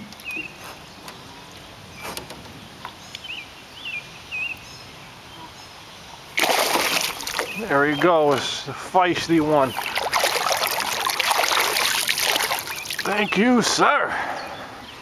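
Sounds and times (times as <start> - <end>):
fish splashing water: 6.4 - 7.7, 9.5 - 13.2
bird chirps: 12.6 - 13.5.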